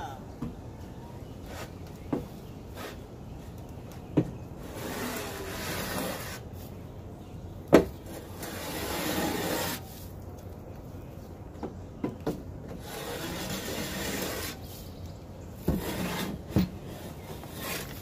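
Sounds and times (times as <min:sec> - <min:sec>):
shovel scraping floor: 0:04.6 - 0:06.4, 0:08.1 - 0:10.0, 0:12.8 - 0:14.7, 0:15.7 - 0:18.0.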